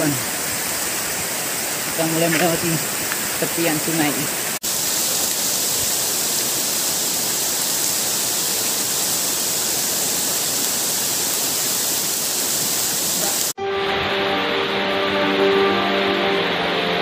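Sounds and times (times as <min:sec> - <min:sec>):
heavy rain: 0:00.0 - 0:17.0
river flowing: 0:00.0 - 0:17.0
music: 0:13.6 - 0:17.0.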